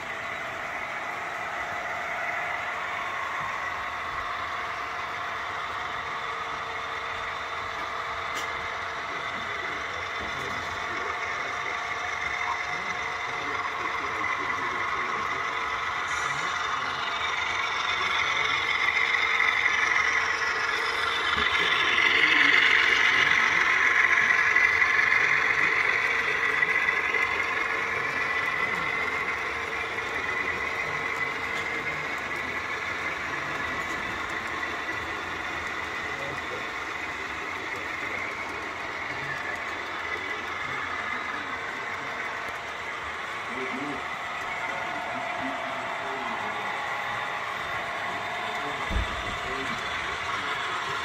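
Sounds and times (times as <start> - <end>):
model train engine sound: 0.0 - 51.0
wheels rumbling on track: 0.0 - 51.0.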